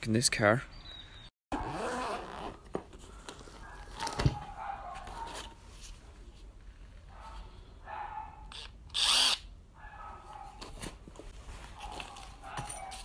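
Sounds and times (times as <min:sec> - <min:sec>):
tool bag rustling and scraping: 0:01.6 - 0:07.5, 0:10.2 - 0:13.0.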